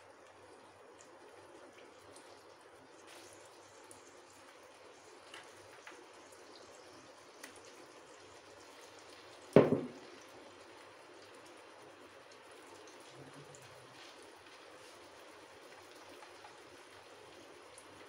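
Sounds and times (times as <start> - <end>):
meat sizzling in oil: 0.0 - 18.0
oil popping: 9.5 - 10.3
sharp knock: 9.6 - 10.0.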